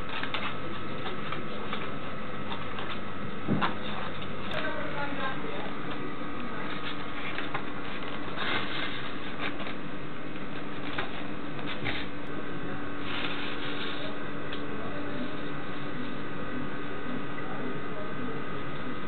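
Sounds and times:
rope and cardboard rustling: 0.0 - 4.8, 5.8 - 12.3, 13.0 - 14.2
steady background hum: 0.0 - 19.0.

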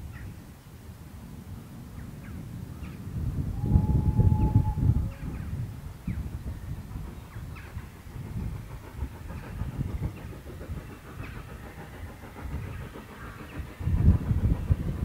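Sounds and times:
distant steam locomotive rumble: 0.0 - 15.0.

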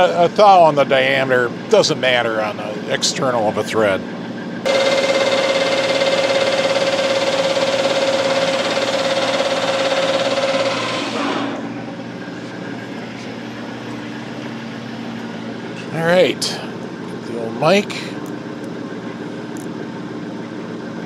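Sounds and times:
metal lathe running: 0.0 - 19.6
high whine of lathe cutting: 0.0 - 21.0.

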